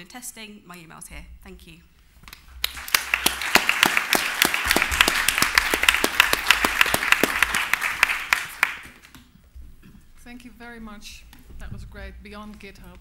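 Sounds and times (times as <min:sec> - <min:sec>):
audience applauding: 0:02.6 - 0:09.2.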